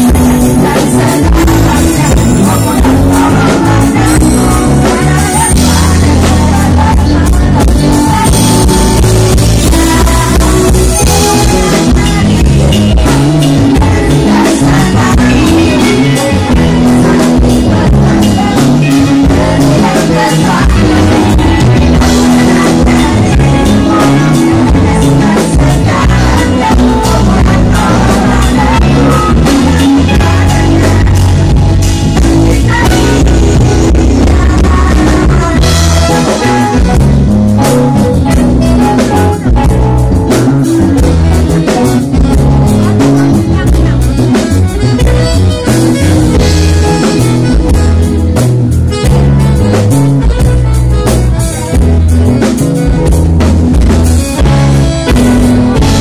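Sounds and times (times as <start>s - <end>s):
women singing together: 0.0s - 31.4s, 32.2s - 36.7s
live band playing: 0.0s - 56.0s.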